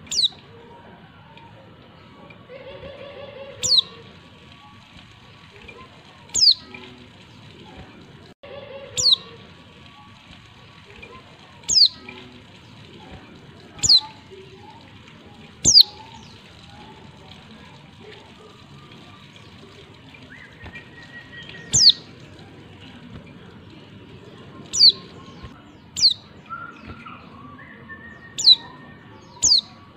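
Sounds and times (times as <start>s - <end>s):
bird calling high down-sweeping calls: 2.9s - 4.0s, 9.0s - 9.3s, 15.6s - 16.2s.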